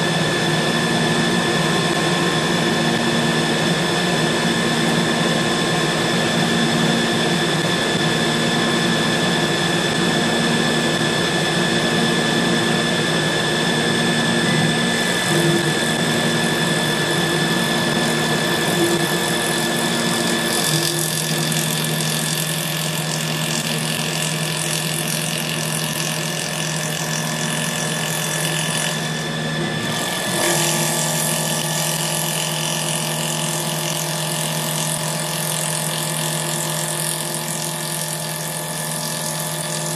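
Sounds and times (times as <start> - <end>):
lathe motor hum and whine: 0.0 - 39.9
cutter hissing on spinning wood: 14.3 - 39.9.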